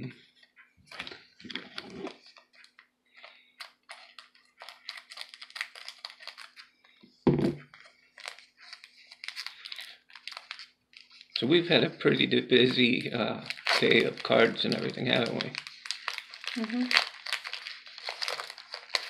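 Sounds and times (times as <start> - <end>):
cards shuffling: 13.5 - 19.0.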